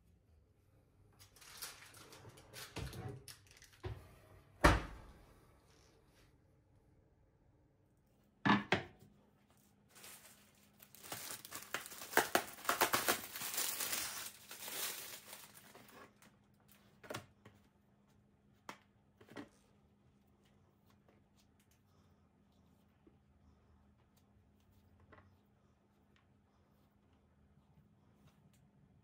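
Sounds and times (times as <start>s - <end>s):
plastic packaging crinkling and tearing: 1.2s - 3.8s, 9.9s - 16.8s.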